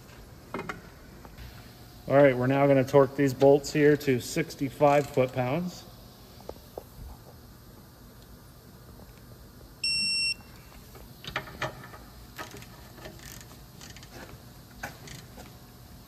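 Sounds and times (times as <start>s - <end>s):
electronic beep: 9.8s - 10.4s.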